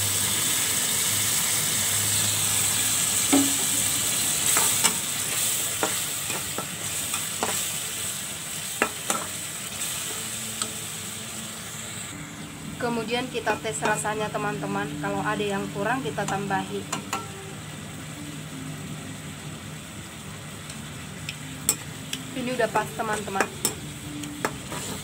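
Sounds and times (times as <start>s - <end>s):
sauce sizzling in wok: 0.0s - 25.0s
metal spatula scraping wok: 24.7s - 25.0s.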